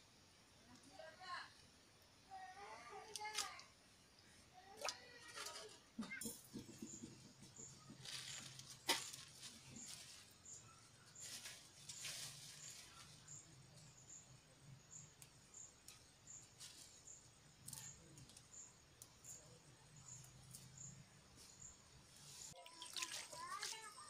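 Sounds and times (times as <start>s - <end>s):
rustles in plastic bag: 8.0s - 13.5s
insect chirping: 12.0s - 24.0s.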